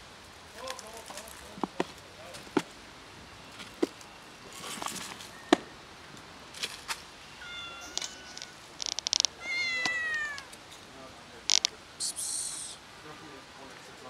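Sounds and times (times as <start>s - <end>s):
light clicks and rustles: 0.5s - 2.7s, 6.1s - 7.1s, 7.8s - 11.8s
cat meowing: 7.4s - 8.6s, 9.2s - 10.6s.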